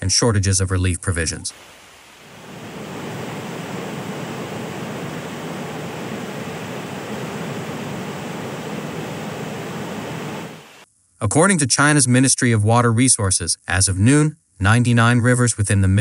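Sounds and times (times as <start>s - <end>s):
floodwater rushing: 1.5s - 10.8s.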